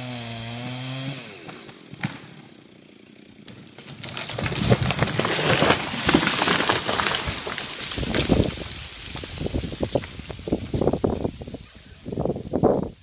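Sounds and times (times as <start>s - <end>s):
chainsaw running: 0.0s - 9.6s
sharp wood crack: 1.1s - 11.3s
tree top crashing through branches: 3.4s - 11.5s.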